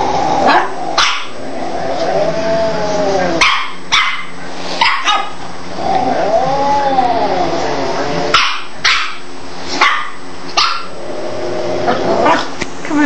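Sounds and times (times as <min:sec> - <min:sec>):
animal wailing calls: 0:06.0 - 0:08.0.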